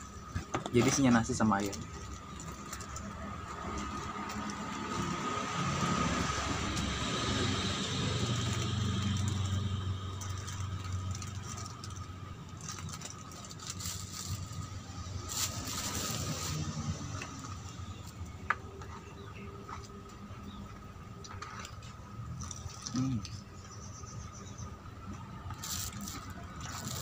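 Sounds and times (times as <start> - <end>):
paper wrapper rustling: 8.3 - 16.8, 25.5 - 27.0.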